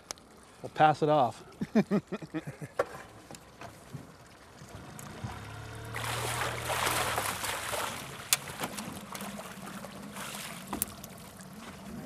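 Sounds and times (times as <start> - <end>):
low steady hum: 0.0 - 12.0
fish thrashing and splashing: 3.8 - 11.9.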